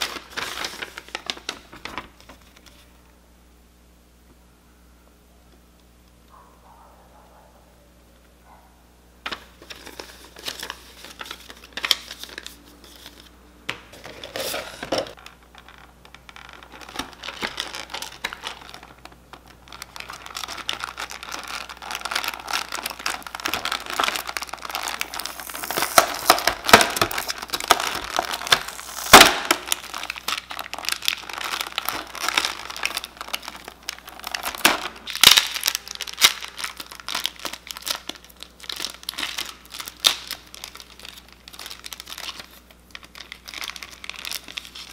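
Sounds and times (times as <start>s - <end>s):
paper sheet rustling: 0.0s - 2.9s, 9.3s - 13.3s, 13.9s - 15.8s
plastic packaging crinkling: 0.0s - 2.9s, 9.2s - 13.3s, 13.9s - 44.9s
sharp plastic crack: 14.9s - 36.5s, 37.2s - 40.8s.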